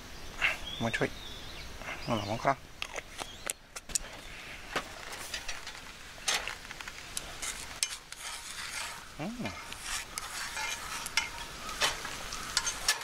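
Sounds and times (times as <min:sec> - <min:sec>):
oil popping and crackling: 0:04.7 - 0:13.0
garlic sizzling in oil: 0:05.4 - 0:13.0.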